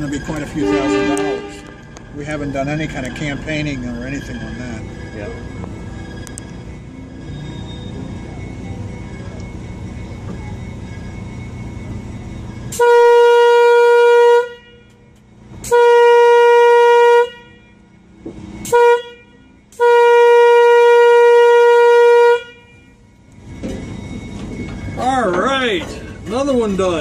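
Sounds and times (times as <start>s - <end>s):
train horn blasts: 0.4s - 2.0s, 12.1s - 23.2s.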